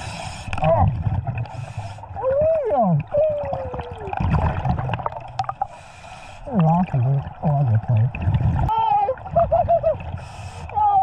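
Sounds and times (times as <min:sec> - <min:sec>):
exhaled bubbles rumbling: 0:00.5 - 0:05.7, 0:06.5 - 0:11.0
regulator inhalation hiss: 0:05.6 - 0:06.5
muffled voice through mouthpiece: 0:06.5 - 0:08.2.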